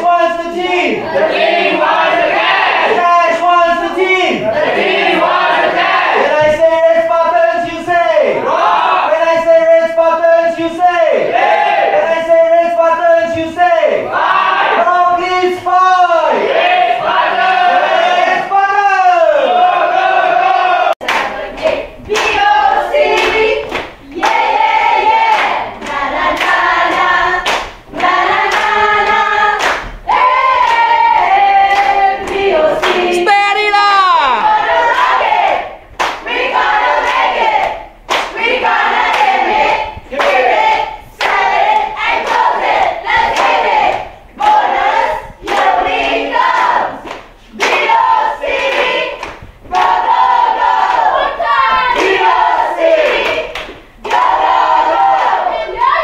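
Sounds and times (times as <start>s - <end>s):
group of people singing: 0.0s - 9.6s, 10.2s - 33.3s, 34.4s - 56.0s
hand claps: 21.0s - 22.4s, 23.1s - 24.4s, 25.3s - 30.0s, 36.0s - 36.3s, 37.0s - 38.4s, 39.1s - 40.5s, 46.5s - 50.0s
group of people shouting a cheer: 33.1s - 35.7s.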